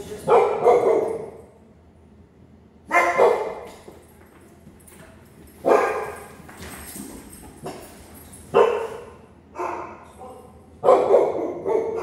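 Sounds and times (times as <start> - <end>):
dog barking: 0.2 - 1.4, 2.9 - 3.7, 5.6 - 6.2, 8.5 - 12.0.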